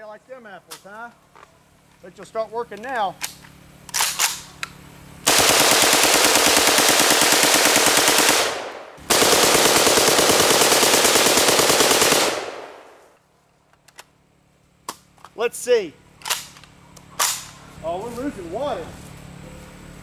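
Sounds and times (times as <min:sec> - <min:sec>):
automatic rifle bursts: 0:05.3 - 0:13.0.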